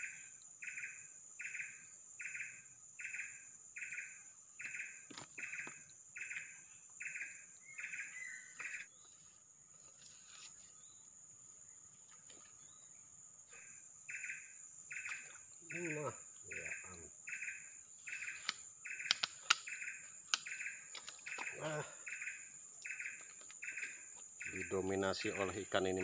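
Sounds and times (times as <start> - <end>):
insect pulsed chirp: 0.0 - 26.0
high-pitched insect drone: 13.5 - 26.0.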